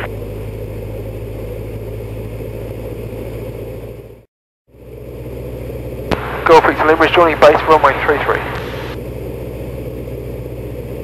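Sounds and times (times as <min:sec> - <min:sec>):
propeller aircraft engine droning: 0:00.0 - 0:11.0.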